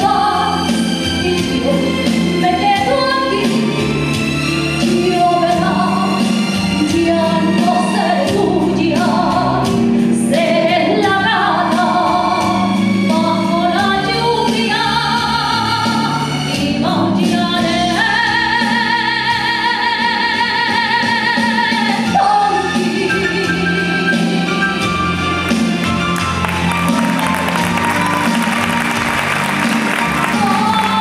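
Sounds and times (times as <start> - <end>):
woman singing into a microphone: 0.0 - 3.8, 4.8 - 6.2, 6.8 - 24.9, 30.2 - 31.0
musical accompaniment: 0.0 - 31.0.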